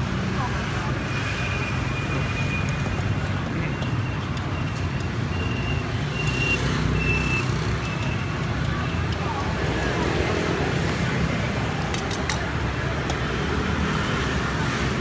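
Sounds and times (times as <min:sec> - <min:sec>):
traffic engines running: 0:00.0 - 0:15.0.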